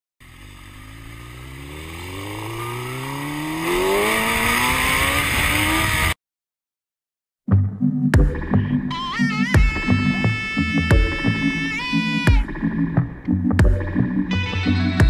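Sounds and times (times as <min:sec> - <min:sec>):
engine revving up: 0:00.2 - 0:06.2.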